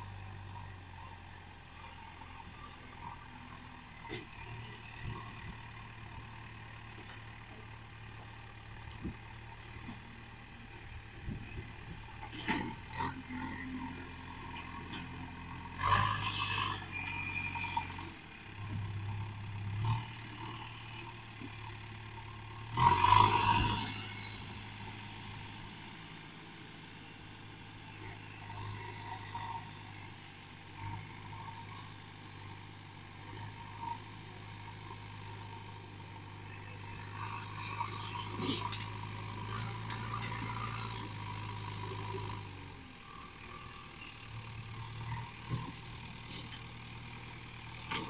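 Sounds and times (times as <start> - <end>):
diesel engine running: 0.0 - 48.0.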